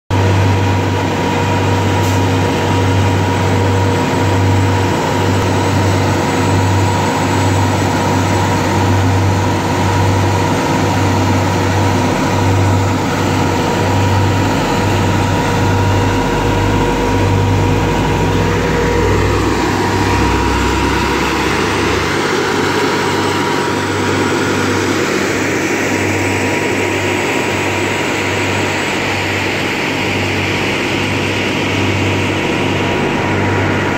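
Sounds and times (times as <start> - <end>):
diesel truck engines idling: 0.2 - 33.9.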